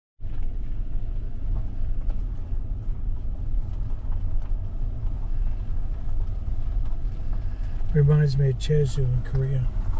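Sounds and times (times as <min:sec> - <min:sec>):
car rumbling over dirt road: 0:00.2 - 0:09.9.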